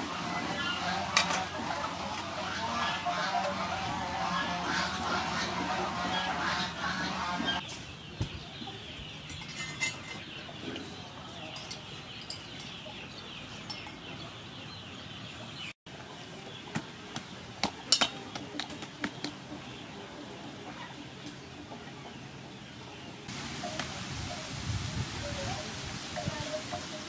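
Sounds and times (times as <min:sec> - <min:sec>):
chickens clucking: 0:00.0 - 0:27.0.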